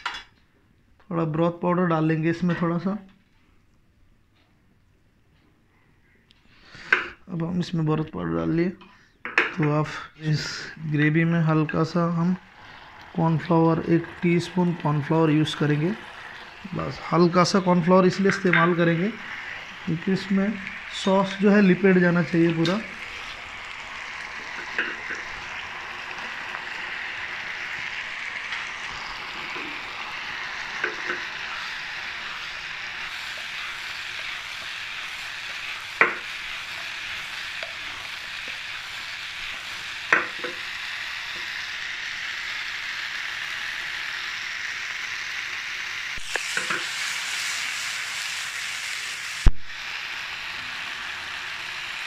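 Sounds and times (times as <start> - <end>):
sauce sizzling in a frying pan: 9.9 - 52.0
spatula stirring food: 27.8 - 40.8.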